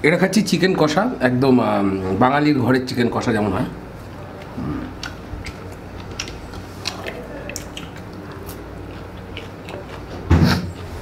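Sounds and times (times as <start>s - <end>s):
person chewing food: 4.0s - 11.0s
wet mouth clicks and smacks: 4.4s - 10.1s.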